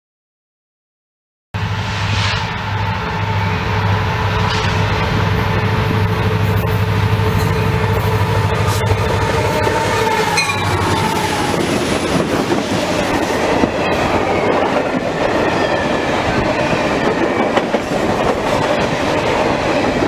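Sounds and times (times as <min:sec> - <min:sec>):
locomotive engine drone: 0:01.6 - 0:14.4
freight cars rumbling past: 0:01.6 - 0:20.0.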